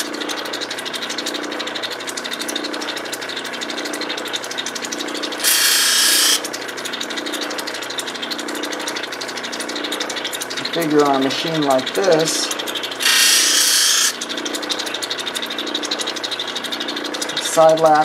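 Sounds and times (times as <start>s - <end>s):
grinding wheel whirring: 5.3s - 6.5s, 13.0s - 14.2s
hiss: 5.4s - 6.4s, 13.0s - 14.2s.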